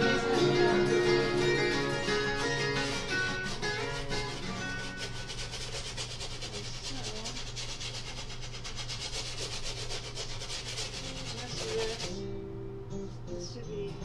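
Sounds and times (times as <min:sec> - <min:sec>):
paintbrush scrubbing on canvas: 0:02.3 - 0:12.2.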